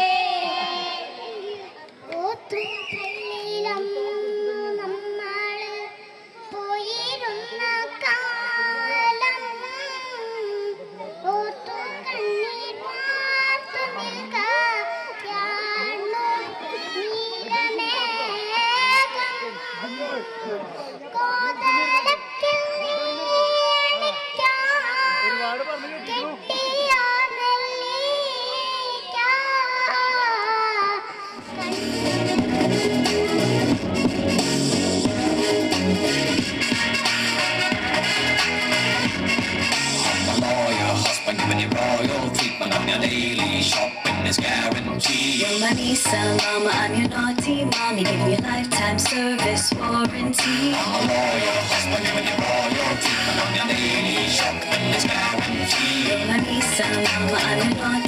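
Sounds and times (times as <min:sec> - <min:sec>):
girl singing into microphone: 0:00.0 - 0:32.9, 0:45.4 - 0:51.3, 0:56.2 - 0:58.0
music with deep bass and beat: 0:31.4 - 0:58.0.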